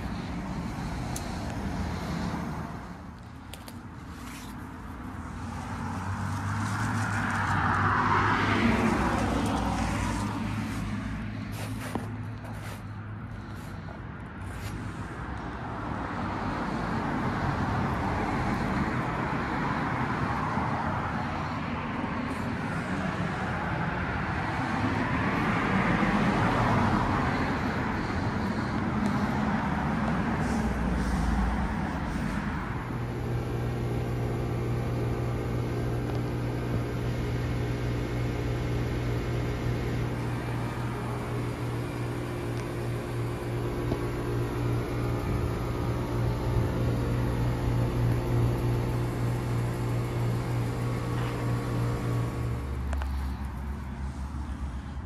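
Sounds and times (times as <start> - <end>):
condenser fan air rush: 0.0 - 54.6.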